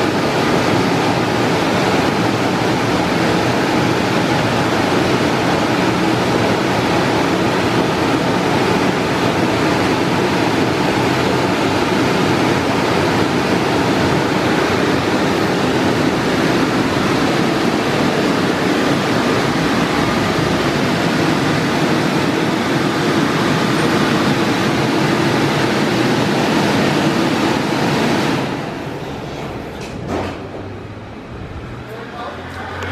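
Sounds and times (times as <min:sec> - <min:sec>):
car wash gantry rushing: 0:00.0 - 0:32.9.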